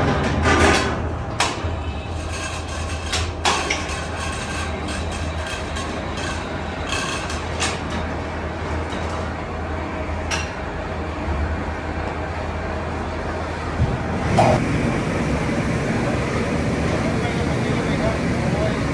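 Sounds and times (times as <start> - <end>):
factory machinery humming: 4.3 - 18.9.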